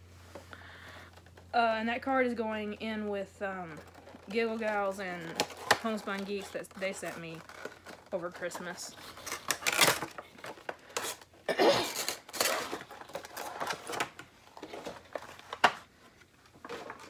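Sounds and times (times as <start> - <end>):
packaging rustling and crinkling: 3.6 - 17.0.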